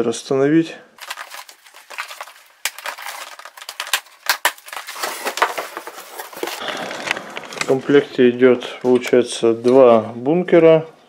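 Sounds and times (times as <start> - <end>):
cardboard crackling and snapping: 1.0 - 8.2.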